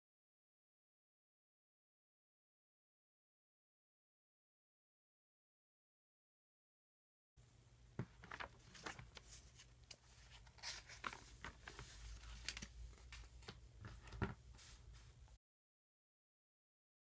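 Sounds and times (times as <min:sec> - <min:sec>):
paper pages rustling: 0:08.0 - 0:15.2.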